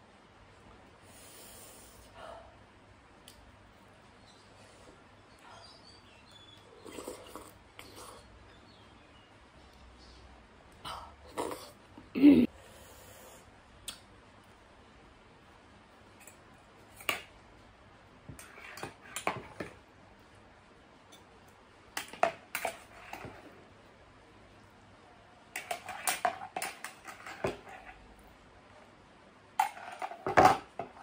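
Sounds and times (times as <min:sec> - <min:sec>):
eating noises: 0:06.6 - 0:08.4
metal spoon scraping bowls: 0:18.3 - 0:19.7, 0:25.6 - 0:28.0, 0:29.6 - 0:31.0.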